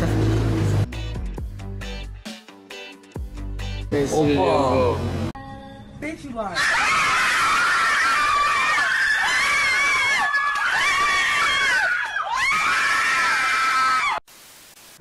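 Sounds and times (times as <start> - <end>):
woman screaming: 6.6 - 14.2.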